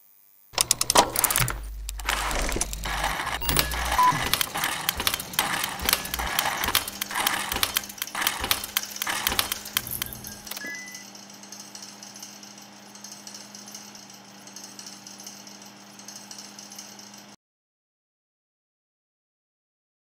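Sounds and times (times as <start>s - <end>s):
low hum: 0.6s - 11.0s
mechanical clicks and ratchets: 0.6s - 17.4s.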